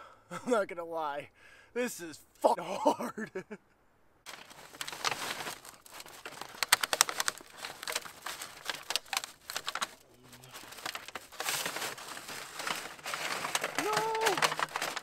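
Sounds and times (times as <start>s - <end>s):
metal sheet crinkling and clicking: 4.3s - 15.0s
tarp rustling: 4.3s - 15.0s.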